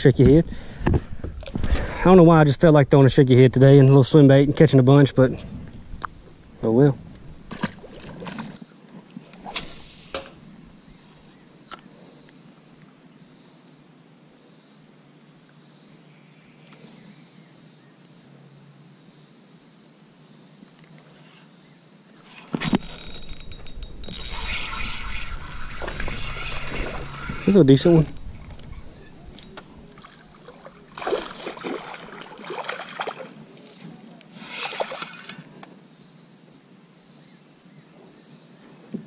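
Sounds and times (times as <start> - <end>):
faint outdoor hiss: 0.0 - 39.0
scraping and rattling: 22.3 - 31.4
fishing tackle knocking: 22.6 - 31.4.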